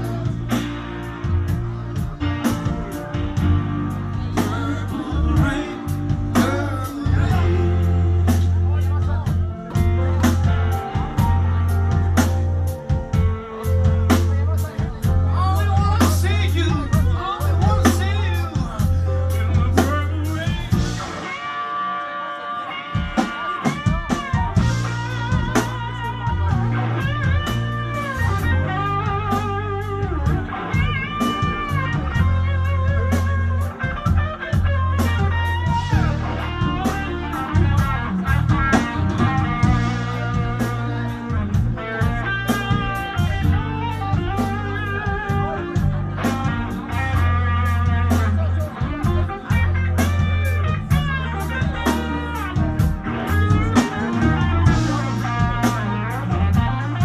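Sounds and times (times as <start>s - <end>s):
sustained bass line: 0.0s - 21.4s, 23.9s - 57.0s
drum kit with cymbal strokes: 0.0s - 21.5s, 22.9s - 57.0s
electric guitar solo: 16.3s - 57.0s.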